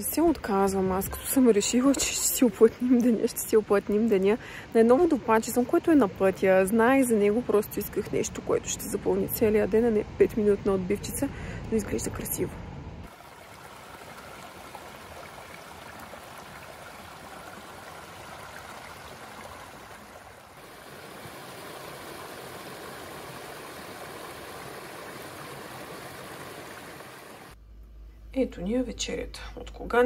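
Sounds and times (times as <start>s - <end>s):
waterfall rushing and splashing: 13.1s - 27.6s.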